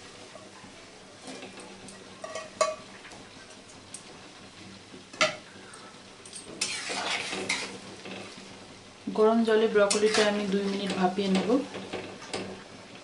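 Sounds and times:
faint hiss from pan: 0.0 - 12.9
utensil scraping pan: 6.4 - 8.4, 9.8 - 12.0.

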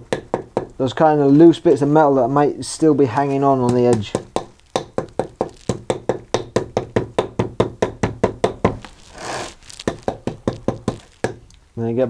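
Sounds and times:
brushing scrape: 8.8 - 10.0.

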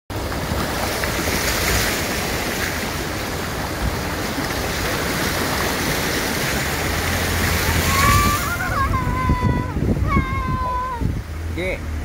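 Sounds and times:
river rushing over stones: 0.1 - 12.0.

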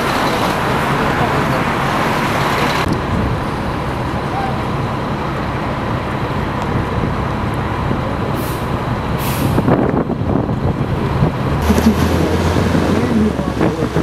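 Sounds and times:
bus engine running: 0.0 - 14.0
road noise: 0.0 - 14.0
air brake hisses: 8.4 - 9.7.

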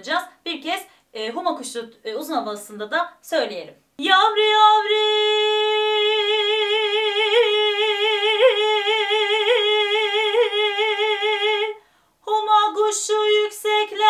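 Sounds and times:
woman singing long held note: 4.1 - 12.5.

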